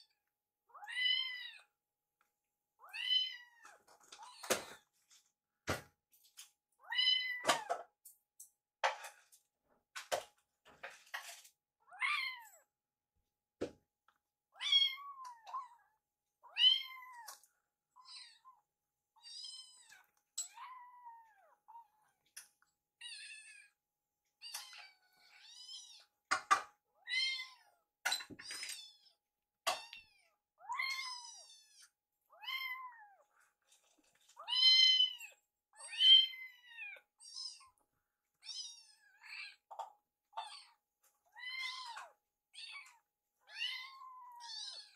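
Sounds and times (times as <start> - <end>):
kittens meowing: 34.4 - 37.8.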